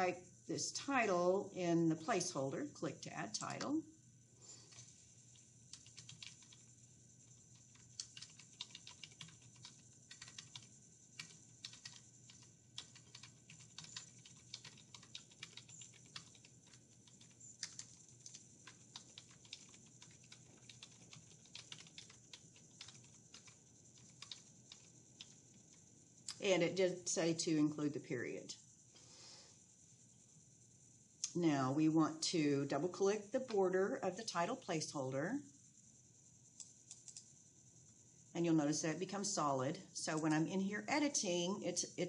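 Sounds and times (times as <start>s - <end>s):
typing on keyboard: 4.7s - 6.7s, 7.5s - 25.7s, 36.6s - 37.2s.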